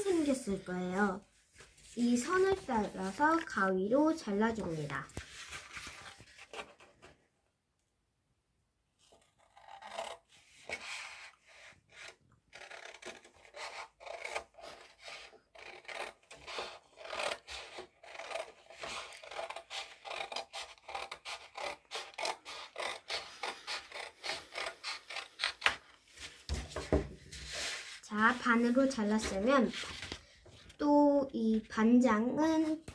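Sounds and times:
scissors snipping paper: 0:12.0 - 0:25.9.

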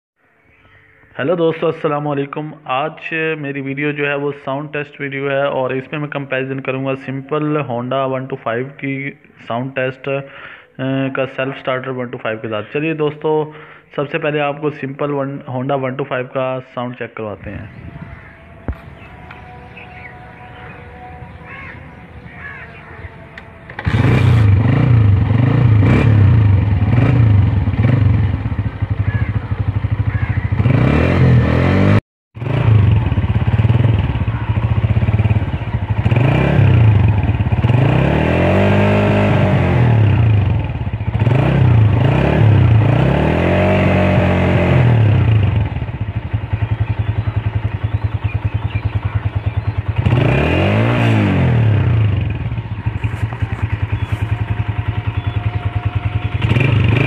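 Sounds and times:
motorcycle engine idling and revving: 0:17.4 - 0:57.0.

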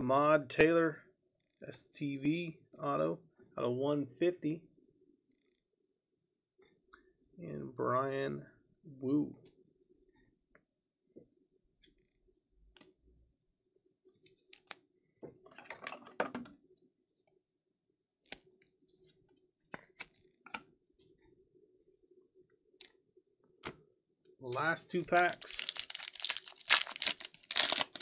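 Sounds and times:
card rustling: 0:24.5 - 0:28.0.

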